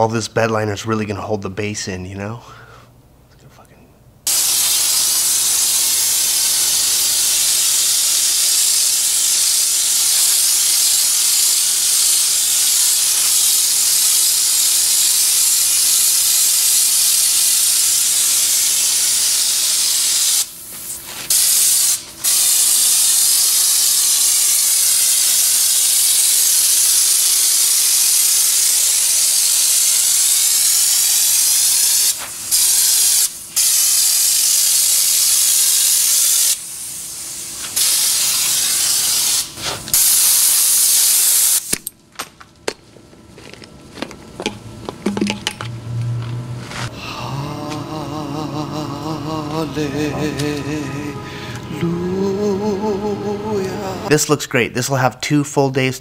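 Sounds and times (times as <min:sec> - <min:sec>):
spray gun hissing: 0:04.3 - 0:41.7.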